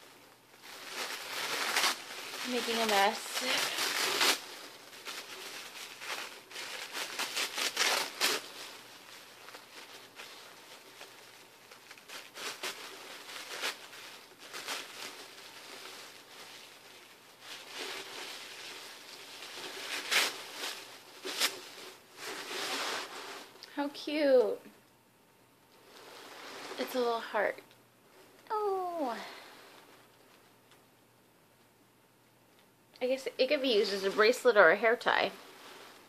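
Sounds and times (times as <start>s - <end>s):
paper packaging crinkling: 0.4s - 23.7s.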